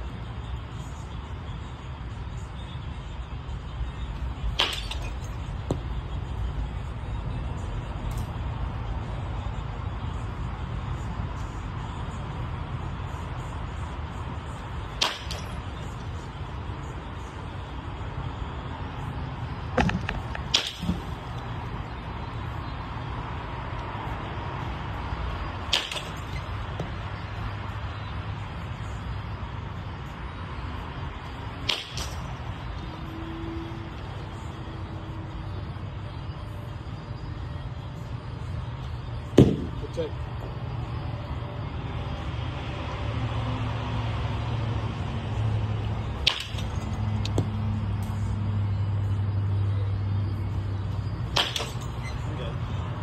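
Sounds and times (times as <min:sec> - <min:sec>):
baseball bat cracking ball: 0:04.5 - 0:05.9, 0:14.9 - 0:15.5, 0:19.8 - 0:21.1, 0:25.6 - 0:27.0, 0:31.6 - 0:32.3, 0:39.4 - 0:39.8, 0:46.2 - 0:47.6, 0:51.3 - 0:51.9.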